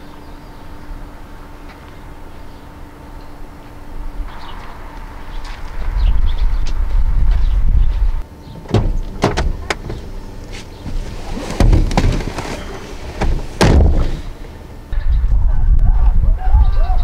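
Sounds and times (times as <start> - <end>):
low rumble: 1.2 - 8.2, 8.8 - 17.0
car door shutting thump: 8.6 - 14.3
car door handle clicks: 8.7 - 10.1.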